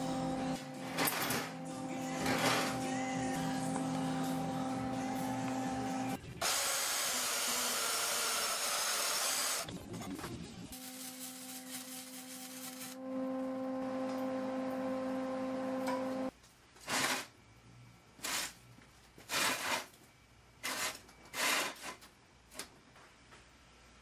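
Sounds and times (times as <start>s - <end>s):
electric machine hum: 0.0s - 6.2s, 13.0s - 16.3s.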